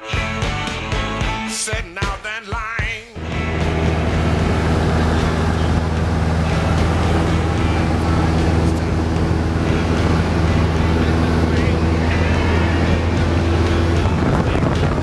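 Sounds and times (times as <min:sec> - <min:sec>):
light aircraft engine droning: 0:03.2 - 0:15.0.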